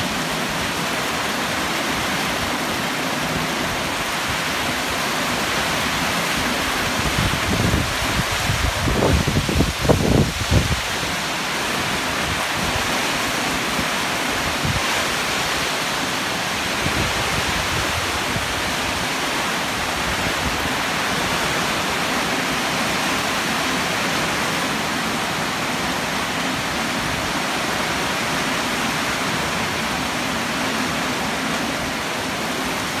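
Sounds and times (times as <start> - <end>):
heavy rain downpour: 0.0 - 33.0
wind buffeting microphone: 6.3 - 11.2.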